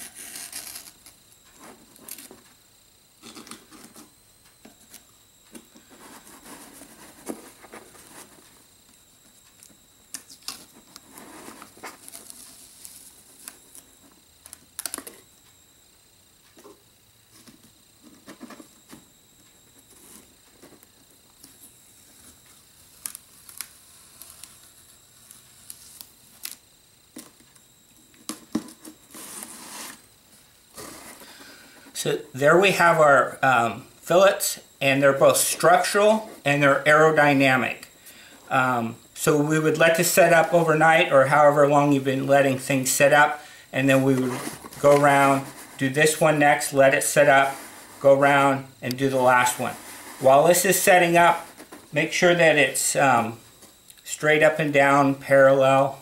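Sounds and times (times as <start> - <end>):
tape tearing off: 0.0 - 1.2, 22.9 - 26.6
tape crinkling: 5.8 - 13.9, 22.9 - 26.7.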